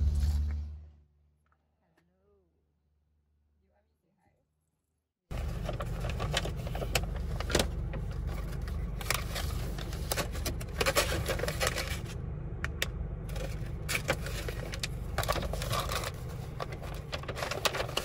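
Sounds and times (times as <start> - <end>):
paper bag rustling: 5.3 - 12.2, 13.3 - 18.0
low car cabin hum: 5.3 - 18.0.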